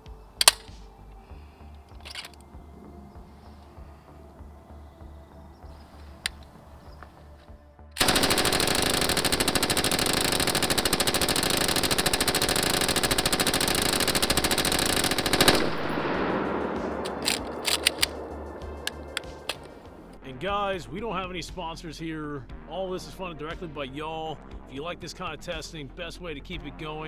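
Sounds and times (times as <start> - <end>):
machine gun automatic fire: 8.0 - 19.8.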